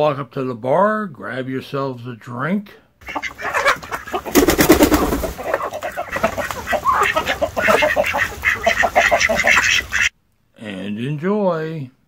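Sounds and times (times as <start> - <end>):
chickens clucking: 3.0 - 10.1
ducks: 3.0 - 10.1.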